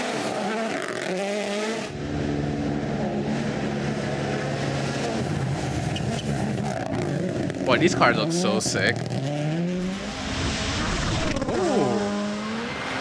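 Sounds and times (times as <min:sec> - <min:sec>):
rally car engine revving: 0:00.0 - 0:13.0
car passing by: 0:09.2 - 0:13.0.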